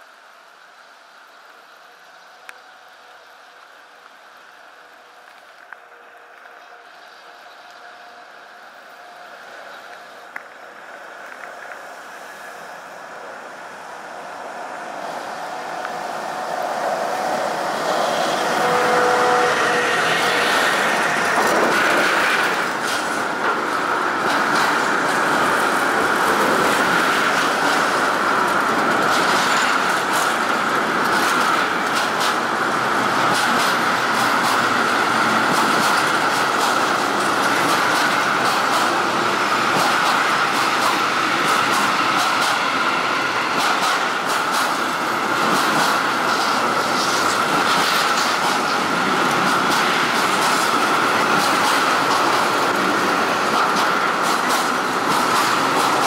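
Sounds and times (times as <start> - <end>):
diesel locomotive passing: 0.2 - 56.0
rail rumble: 1.9 - 56.0
wheels clicking over rail joints: 19.6 - 56.0.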